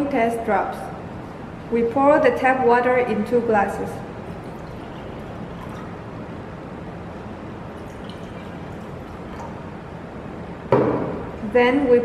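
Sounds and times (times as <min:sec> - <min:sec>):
water pouring into glass: 0:04.2 - 0:06.2, 0:07.1 - 0:09.8.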